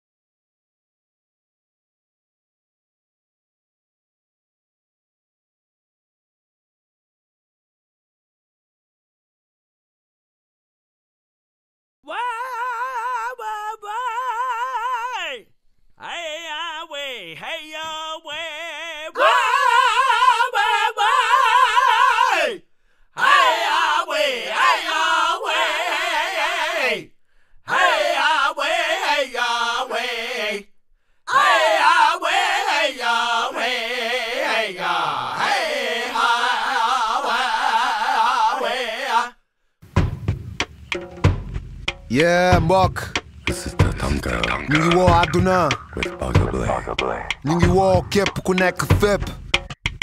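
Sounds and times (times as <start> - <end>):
person singing unaccompanied: 12.0 - 22.6, 42.1 - 49.5
percussive beat: 39.9 - 50.0
person chanting with vibrato: 43.5 - 49.2.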